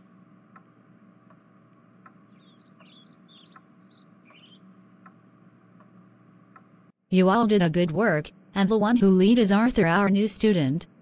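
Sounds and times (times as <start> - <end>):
low steady hum: 0.0 - 11.0
birds chirping: 2.0 - 5.2.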